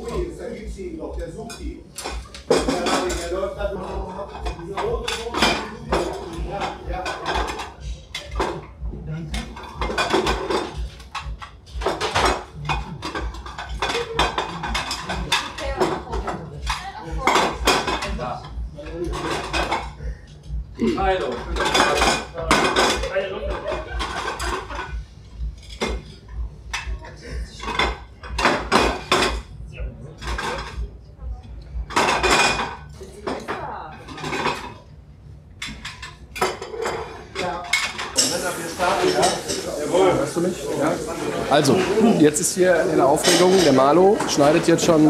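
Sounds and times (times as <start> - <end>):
ceramic plates clattering: 4.2 - 8.7, 9.3 - 20.0, 21.2 - 29.6, 30.2 - 30.8, 31.9 - 34.9, 35.6 - 40.0, 42.8 - 45.0.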